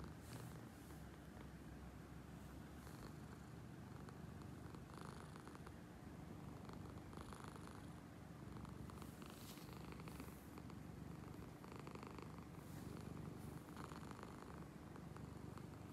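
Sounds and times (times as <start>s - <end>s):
cat purring loudly: 6.4s - 15.9s.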